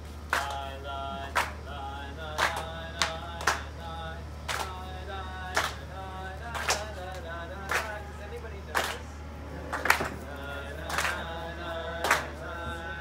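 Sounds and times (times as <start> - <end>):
voices singing: 0.2 - 13.0
hand claps: 0.3 - 1.7, 2.3 - 3.7, 4.5 - 4.8, 5.5 - 5.8, 6.4 - 8.0, 8.7 - 9.1, 9.7 - 12.5.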